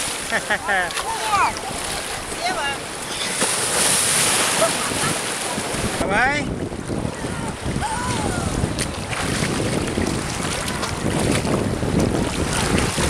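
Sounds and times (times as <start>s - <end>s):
surf in shallow water: 0.0s - 13.0s
wind buffeting microphone: 1.0s - 13.0s
person splashing into water: 3.3s - 6.0s.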